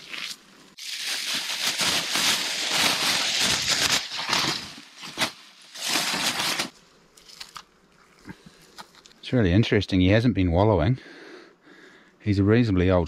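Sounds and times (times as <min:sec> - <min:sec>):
plastic bag rustling: 0:00.0 - 0:06.8.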